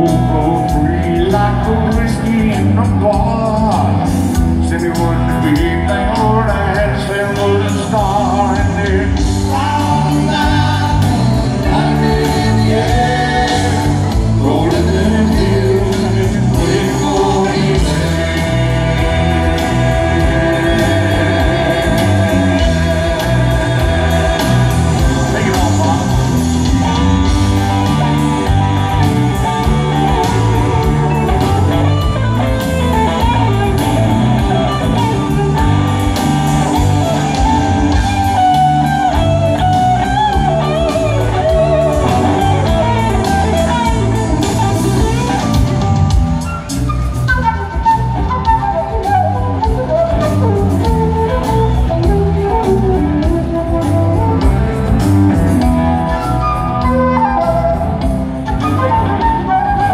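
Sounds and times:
person singing: 0.0 - 46.4
rock band playing through pa: 0.0 - 59.9.

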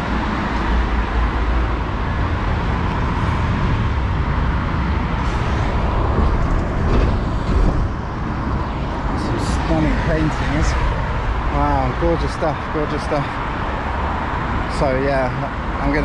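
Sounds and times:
passing cars and buses rumbling: 0.0 - 16.0.

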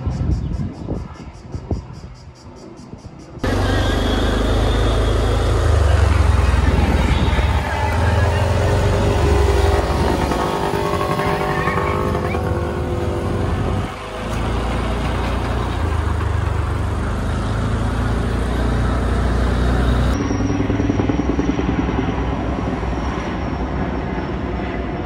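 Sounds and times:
higher engine note: 3.4 - 23.4
diesel engine rumbling: 3.4 - 25.0.

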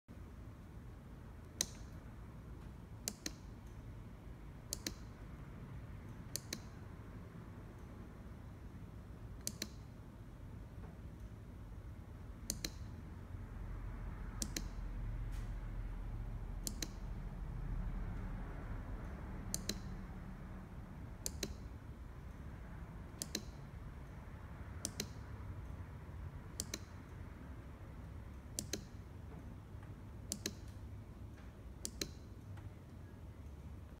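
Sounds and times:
low room rumble: 0.1 - 34.0
push-button switch clicks: 3.0 - 3.5, 4.7 - 5.1, 6.3 - 6.8, 9.4 - 9.8, 12.5 - 12.9, 14.4 - 14.8, 16.6 - 17.0, 19.5 - 20.0, 21.2 - 21.7, 23.2 - 23.6, 24.8 - 25.3, 26.6 - 27.0, 28.5 - 29.0, 30.3 - 30.8, 31.8 - 32.3.

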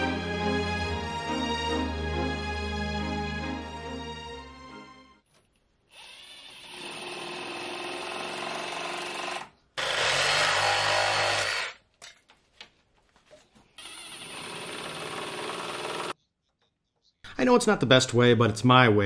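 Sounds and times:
cordless drill boring into timber: 5.9 - 11.8, 13.8 - 16.2.

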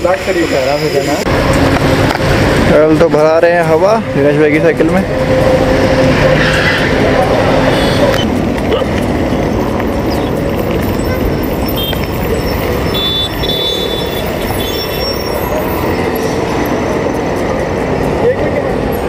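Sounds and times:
road traffic: 0.0 - 19.0.

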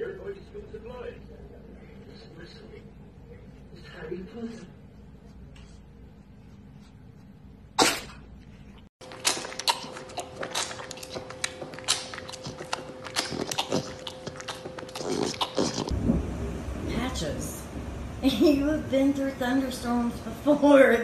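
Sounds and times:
faint steady hum: 0.0 - 21.0
tiger cub sucking bottle: 9.1 - 15.9.

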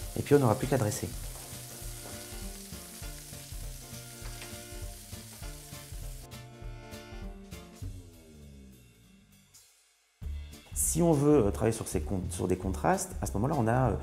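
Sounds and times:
scallops sizzling in a frying pan: 0.0 - 6.3
background music with steady beat: 0.0 - 14.0.

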